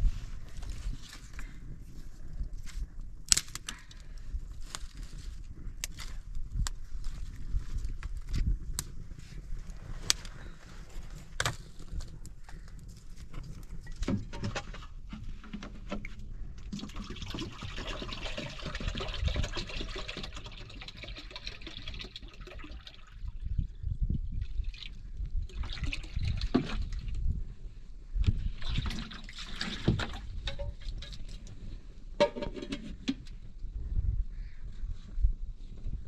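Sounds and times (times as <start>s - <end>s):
liquid pouring into pot: 16.8s - 23.3s.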